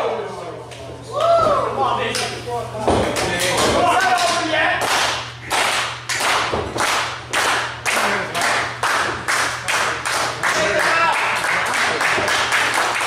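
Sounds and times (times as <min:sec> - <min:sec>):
rhythmic hand clapping: 0:03.0 - 0:13.0.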